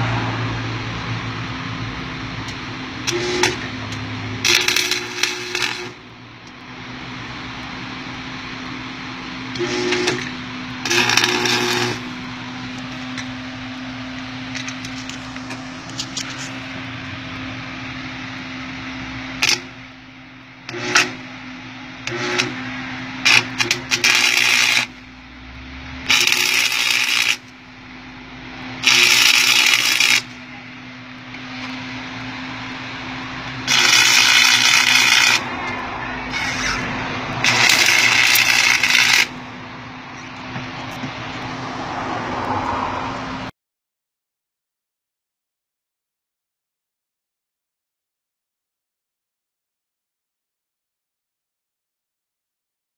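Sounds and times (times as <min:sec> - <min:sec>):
steady low hum: 0:00.0 - 0:41.8
welding arc crackling: 0:02.0 - 0:17.4, 0:18.8 - 0:19.9, 0:20.6 - 0:21.3, 0:22.0 - 0:25.1, 0:26.0 - 0:27.8, 0:28.8 - 0:30.4, 0:31.3 - 0:41.4.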